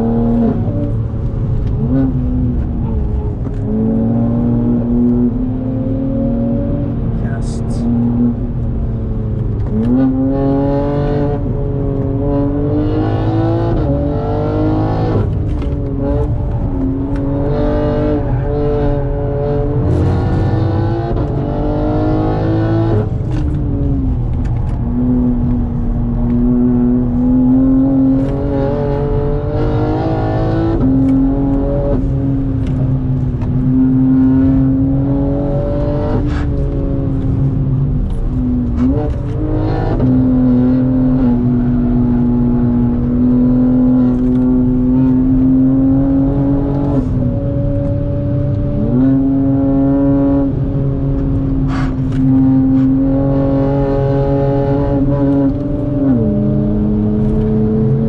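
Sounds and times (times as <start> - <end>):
car engine accelerating: 0.0 - 58.0
tyre and road rumble: 0.0 - 58.0.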